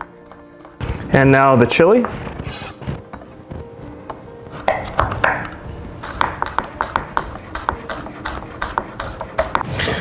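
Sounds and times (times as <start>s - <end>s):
knife chopping on wooden board: 4.6s - 9.6s.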